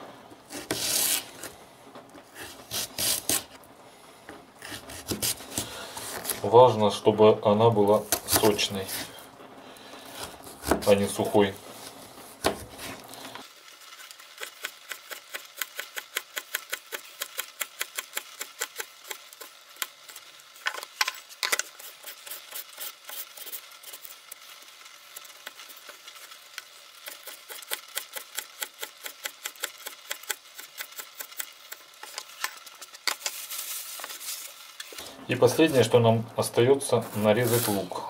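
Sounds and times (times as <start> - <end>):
knife slicing carrot on plastic board: 4.6 - 6.4, 7.9 - 9.1, 10.1 - 11.4, 12.4 - 13.1.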